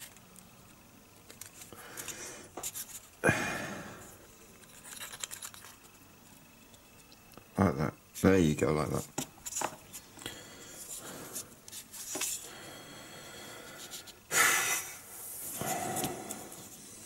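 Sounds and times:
plastic parts rustling and clicking: 1.2 - 3.1, 4.6 - 6.0
loud nasal exhale: 13.8 - 16.4.

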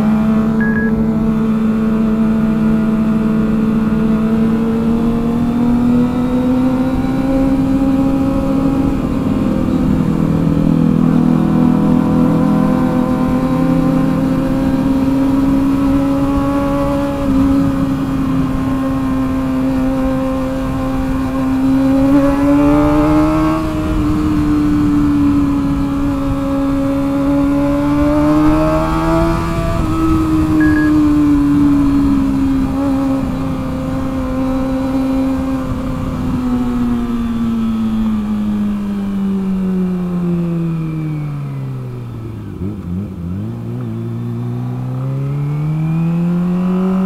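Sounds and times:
motorcycle engine cruising: 0.0 - 47.0.

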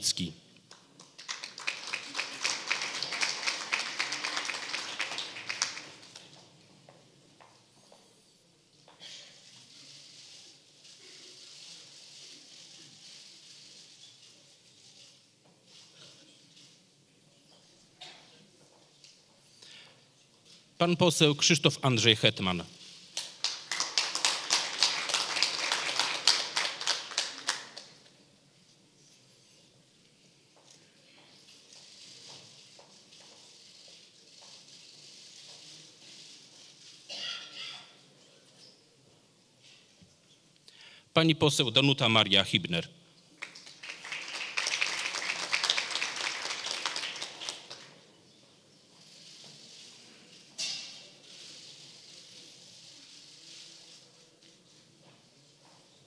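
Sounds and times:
audience applauding: 0.7 - 6.4, 23.2 - 28.0, 43.4 - 48.0.

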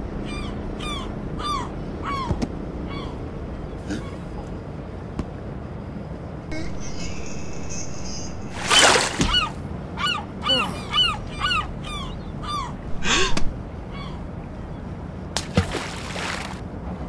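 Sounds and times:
cartoon rushing noise: 6.5 - 9.6
short rising and falling calls: 6.5 - 11.6.

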